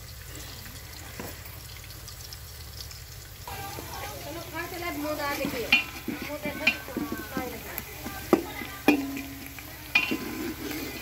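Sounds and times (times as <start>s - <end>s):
onions sizzling in oil: 0.0s - 11.0s
metal ladle clinking against pot: 5.3s - 7.6s, 8.2s - 11.0s.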